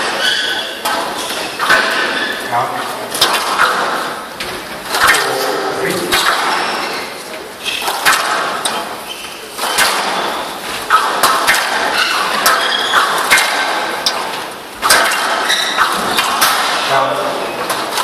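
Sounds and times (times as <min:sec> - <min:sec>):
squash ball hits: 0:00.0 - 0:02.4, 0:03.1 - 0:18.0
shoes squeaking on court: 0:05.8 - 0:08.0, 0:08.7 - 0:10.8, 0:11.9 - 0:13.0.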